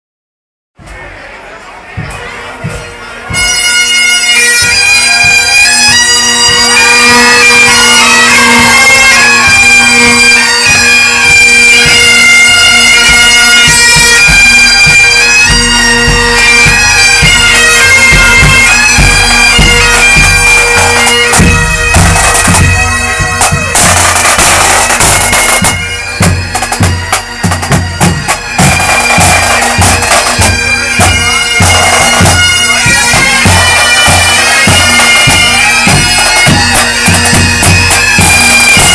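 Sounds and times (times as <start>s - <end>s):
drumbeats: 0.8s - 38.9s
bagpipes playing: 2.0s - 38.9s.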